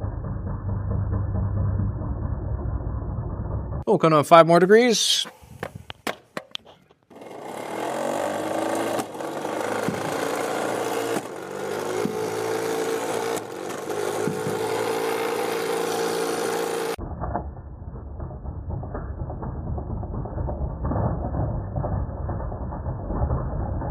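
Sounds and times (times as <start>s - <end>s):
flywheel motor humming: 7.1s - 17.0s
ball launched from shooter: 8.8s - 11.4s.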